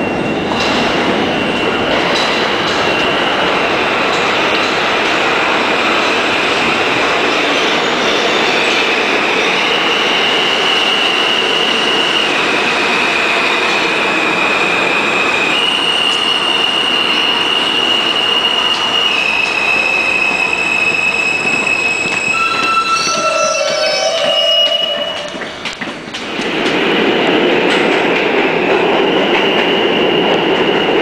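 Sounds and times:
train wheels rumbling on rail: 0.0 - 31.0
high brake squeal: 15.3 - 25.6.

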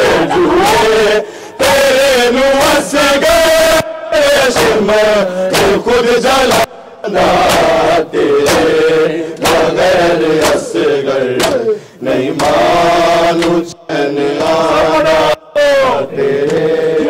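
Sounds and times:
men chanting in unison: 0.0 - 17.0
hands clapping on chests: 4.5 - 4.9, 5.5 - 5.8, 6.5 - 6.7, 7.4 - 7.8, 8.4 - 8.8, 9.4 - 10.8, 11.4 - 13.8, 16.4 - 16.6.

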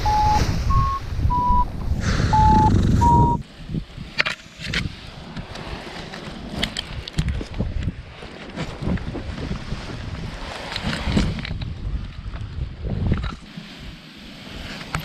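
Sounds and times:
variometer electronic beeps: 0.0 - 1.7, 2.3 - 3.4
wind buffeting microphone: 0.0 - 15.0.

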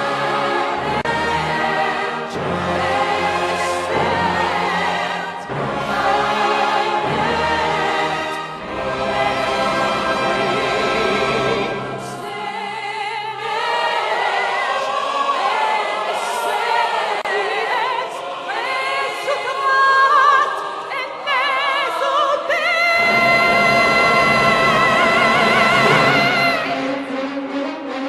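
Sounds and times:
orchestral accompaniment: 0.0 - 15.8, 23.0 - 28.0
operatic soprano singing: 0.0 - 27.2
choir: 0.0 - 28.0.

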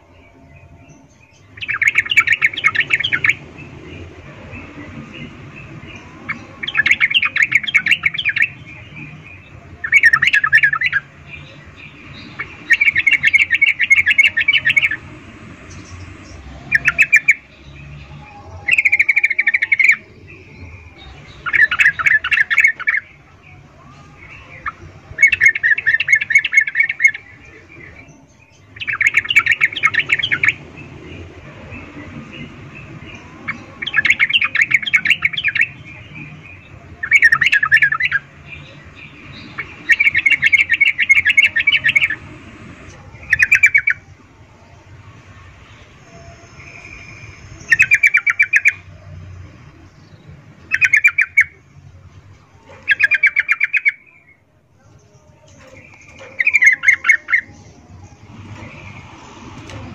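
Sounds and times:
bird chattering calls: 1.4 - 15.0, 52.7 - 54.0.

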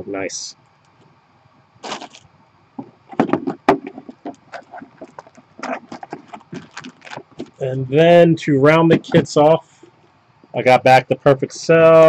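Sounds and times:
packaging crinkling and rustling: 1.8 - 2.3, 3.2 - 7.6.

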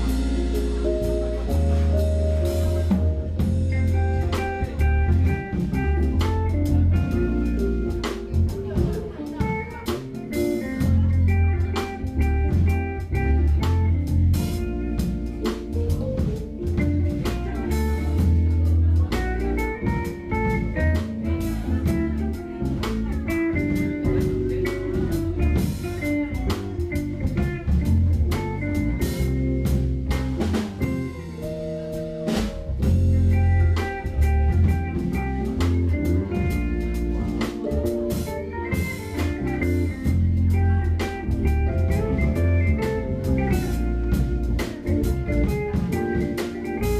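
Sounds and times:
jazz fusion band playing: 0.0 - 46.9.

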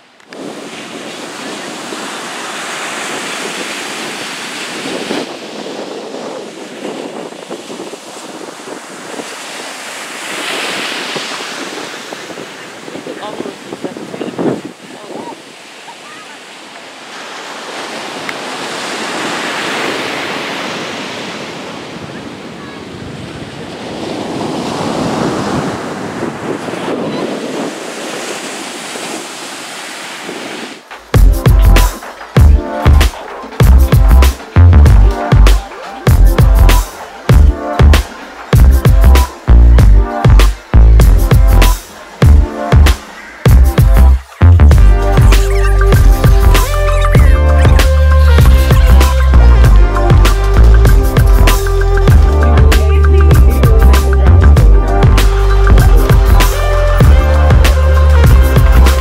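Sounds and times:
surf breaking on beach: 0.0 - 53.0, 54.8 - 59.0
wind buffeting microphone: 0.3 - 15.7, 17.4 - 36.6.

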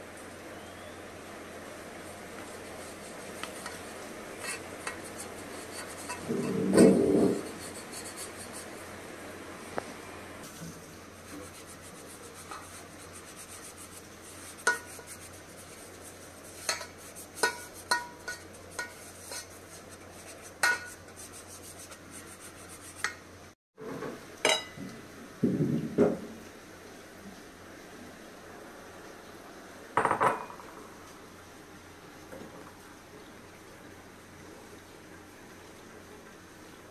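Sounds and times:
brush rubbing metal cake pan: 2.4 - 8.9, 10.5 - 23.3
brush clinking against pan: 11.4 - 21.3
kitchenware knocks: 23.9 - 26.3, 30.0 - 30.6.

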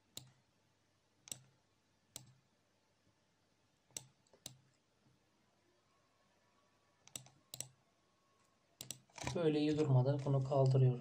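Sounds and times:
computer mouse clicking: 0.1 - 0.4, 1.3 - 1.5, 2.2 - 2.4, 3.9 - 4.6, 7.0 - 7.8, 8.8 - 9.4.

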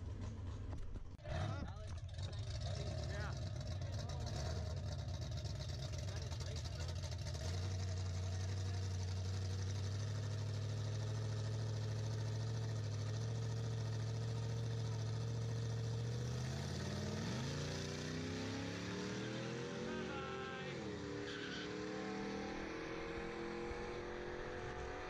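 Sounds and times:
racing engines accelerating: 1.2 - 11.6, 13.1 - 25.0.

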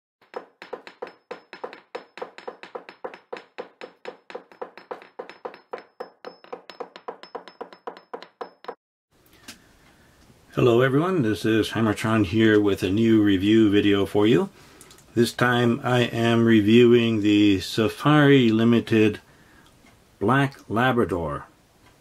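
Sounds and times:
rapid even tapping: 0.2 - 8.8.

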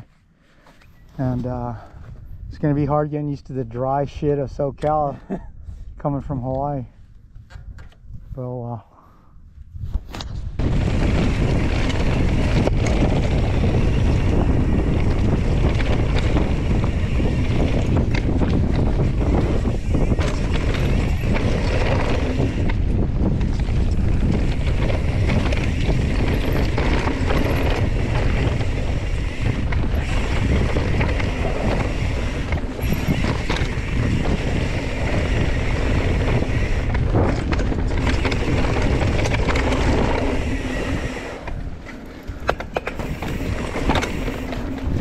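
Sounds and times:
wind buffeting microphone: 1.2 - 45.0
mountain bike rumbling and rattling: 9.7 - 45.0.

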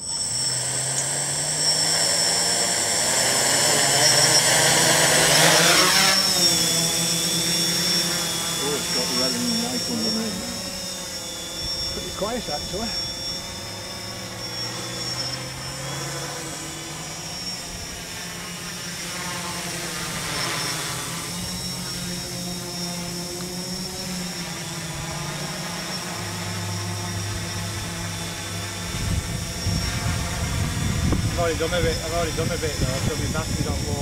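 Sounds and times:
drone motors buzzing: 0.0 - 34.0.

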